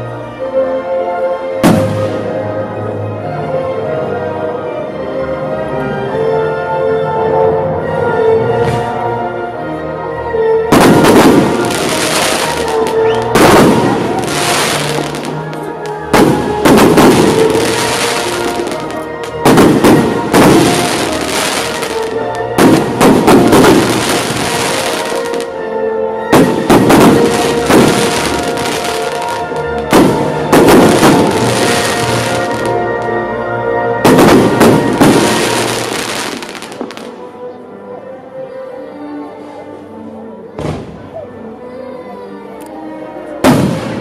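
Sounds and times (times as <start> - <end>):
firework crackling: 10.7 - 25.5, 26.4 - 32.8, 34.1 - 37.1
loud music: 10.7 - 37.3.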